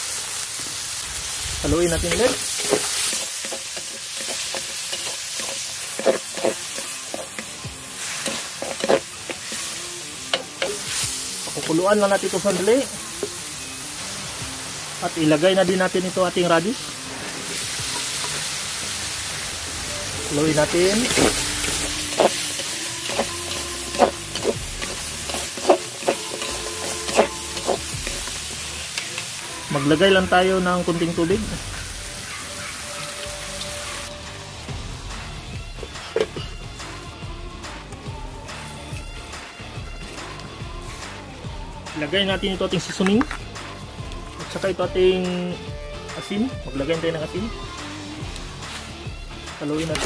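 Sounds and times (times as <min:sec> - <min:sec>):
chicken sizzling in oil: 0:00.0 - 0:50.0
utensil scraping a pan: 0:01.9 - 0:11.8, 0:20.2 - 0:29.3
spoon knocking and scraping pan: 0:21.0 - 0:29.2.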